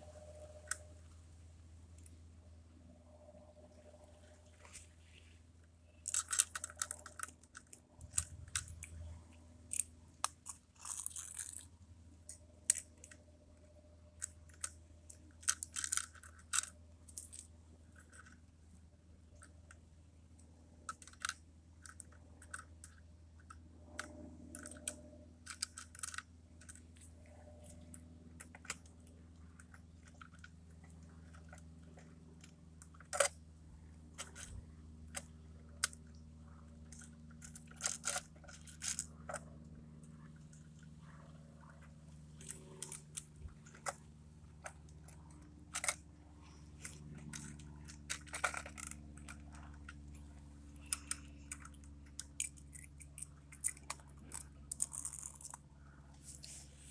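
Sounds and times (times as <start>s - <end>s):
plastic toy parts clicking: 6.0s - 9.0s, 9.7s - 11.7s, 12.3s - 13.2s, 14.2s - 18.4s, 20.9s - 27.0s, 27.6s - 33.4s, 36.9s - 39.4s, 44.6s - 50.0s, 50.8s - 55.6s.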